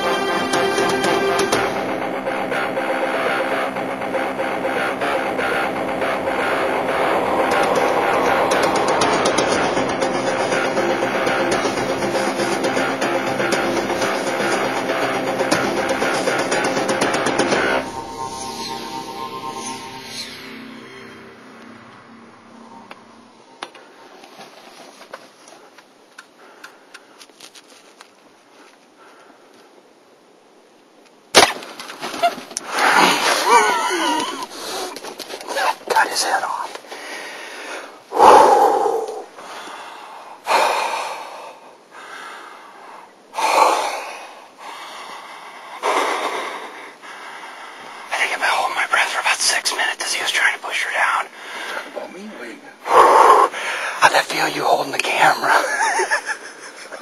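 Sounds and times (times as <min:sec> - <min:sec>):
man breathing heavily: 0:36.8 - 0:48.2, 0:51.3 - 0:52.0, 0:52.7 - 0:54.1.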